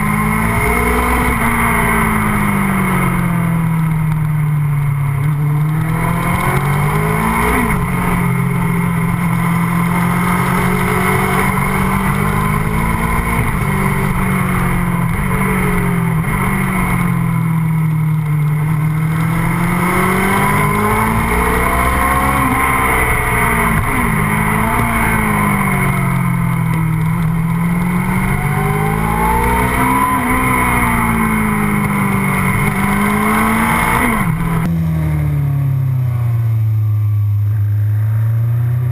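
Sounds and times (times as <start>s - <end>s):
motorcycle engine revving: 0.0s - 38.9s.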